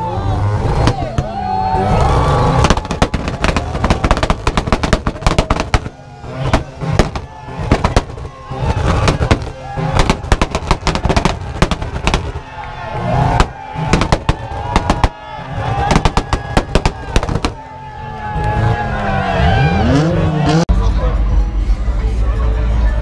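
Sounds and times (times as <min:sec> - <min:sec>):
crowd shouting and cheering: 0:00.0 - 0:23.0
low engine rumble: 0:00.0 - 0:23.0
exhaust bangs and pops: 0:00.7 - 0:18.6.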